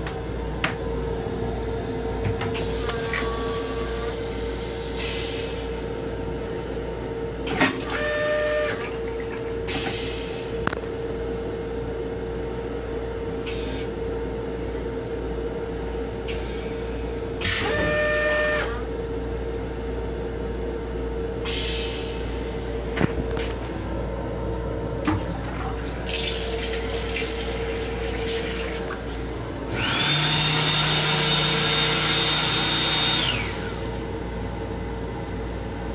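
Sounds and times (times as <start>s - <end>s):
railcar steady hum: 0.0s - 7.5s, 8.3s - 29.9s, 33.3s - 35.9s
machine noise with high tone: 0.0s - 14.9s, 16.0s - 20.0s, 20.8s - 35.9s
water rinsing into toilet bowl: 25.2s - 29.2s.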